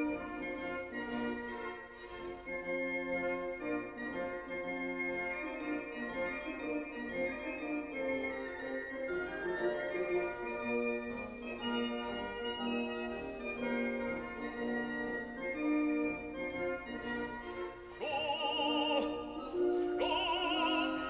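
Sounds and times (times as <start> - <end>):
operatic voice singing: 18.0 - 21.0
organ-like chords: 18.0 - 21.0.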